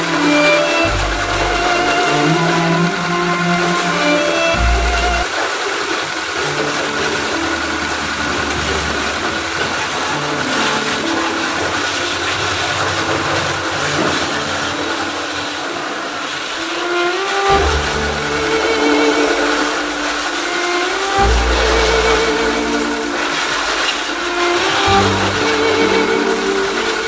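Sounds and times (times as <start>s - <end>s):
pressure washer water jet hissing: 0.0s - 27.0s
washer motor humming: 0.0s - 27.0s.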